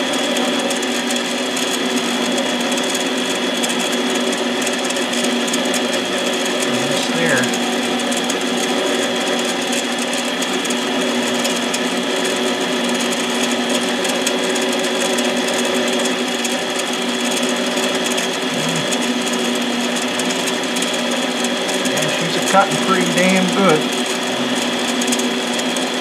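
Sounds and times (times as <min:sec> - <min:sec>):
lathe motor whining: 0:04.0 - 0:14.4.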